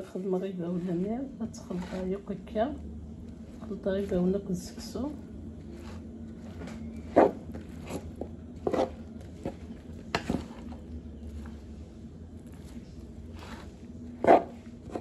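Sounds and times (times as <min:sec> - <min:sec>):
spoon stirring food in a bowl: 0:05.6 - 0:11.7.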